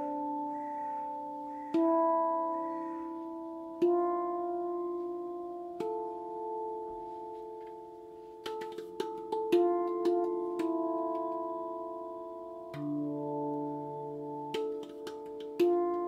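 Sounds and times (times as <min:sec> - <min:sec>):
steel tongue drum notes: 0:00.0 - 0:16.0.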